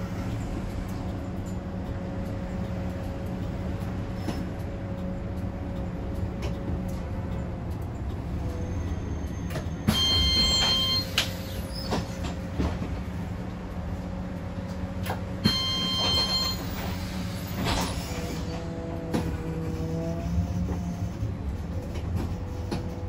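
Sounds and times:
bus drivetrain hum: 0.0 - 23.0
electronic beep tone: 9.9 - 11.2, 15.4 - 16.7.

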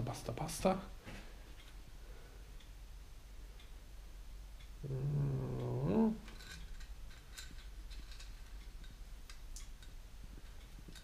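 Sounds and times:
man humming hmm: 4.8 - 6.3.

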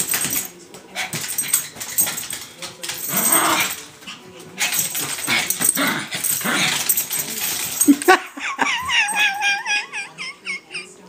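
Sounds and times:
dogs scuffling: 0.0 - 8.2.

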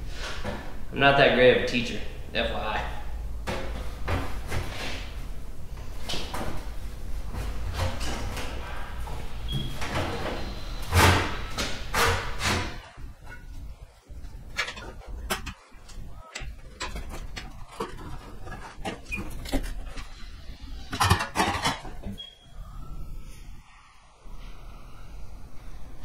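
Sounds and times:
sheet metal scraping and rattling: 10.8 - 22.3.

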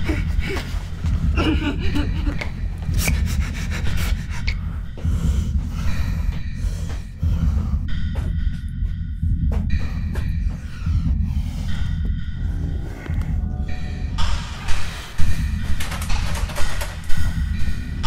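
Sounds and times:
low rumbling drone: 0.0 - 18.0
breathing: 3.2 - 7.9, 9.8 - 13.4.

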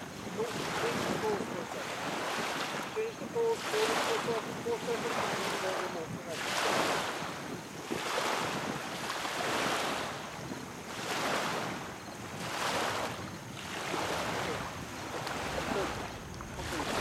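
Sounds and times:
small waves lapping on shore: 0.0 - 17.0.

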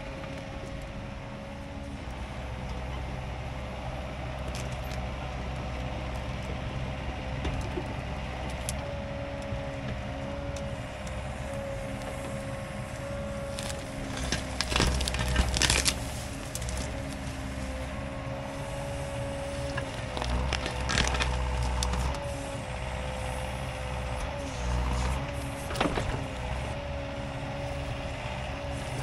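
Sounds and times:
excavator engine and hydraulics: 0.0 - 29.0
ripper cracking and scraping ground: 12.1 - 17.9, 18.8 - 22.2.

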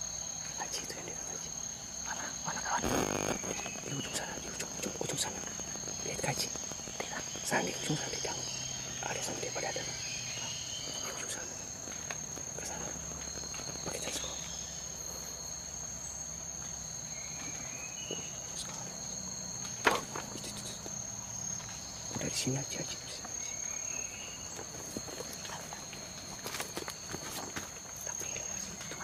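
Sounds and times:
insects droning: 0.0 - 29.0.

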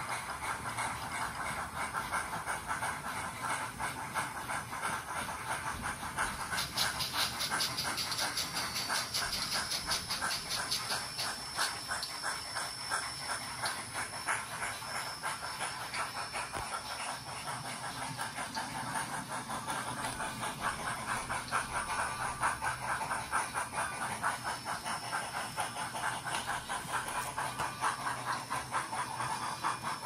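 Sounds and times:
steam exhaust chuffs: 0.0 - 30.0
thin steady high tone: 6.6 - 30.0.

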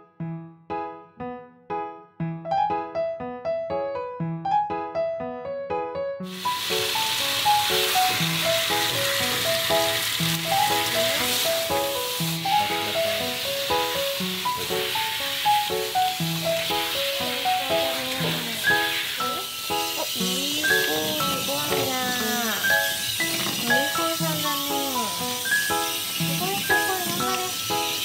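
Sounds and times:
light piano music: 0.0 - 28.0
shower head spraying water: 6.3 - 28.0.

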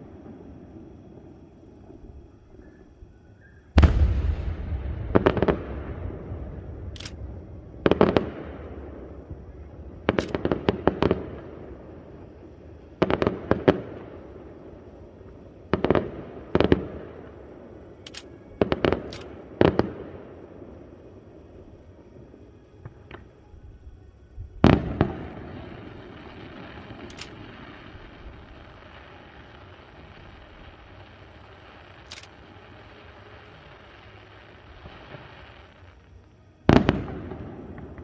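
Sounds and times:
firework boom: 3.8 - 6.9
firework cracks and bangs: 3.8 - 12.0, 24.6 - 32.1, 36.6 - 38.0.

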